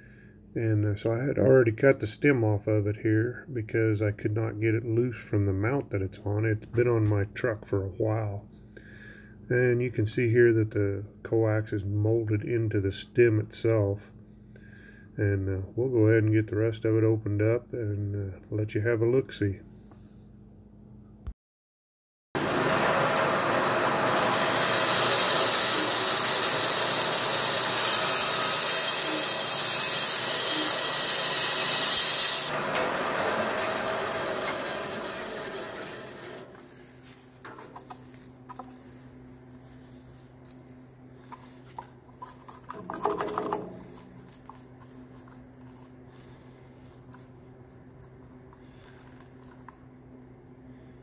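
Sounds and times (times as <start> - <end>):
saw motor humming: 22.4 - 37.0
band saw rasping through plastic: 22.7 - 36.7.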